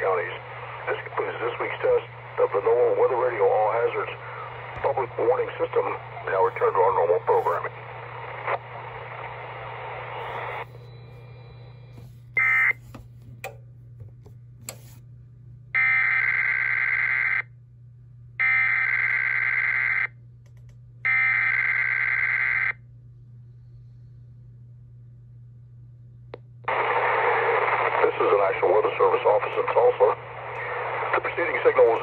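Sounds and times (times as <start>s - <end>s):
radio hiss: 0.0s - 10.9s, 26.7s - 32.0s
steady low hum: 0.0s - 32.0s
clicks: 20.4s - 20.8s.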